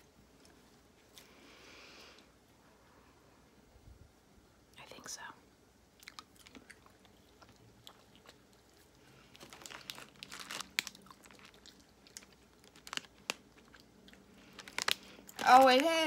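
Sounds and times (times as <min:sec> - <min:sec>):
chewing crunching: 0:06.0 - 0:15.4.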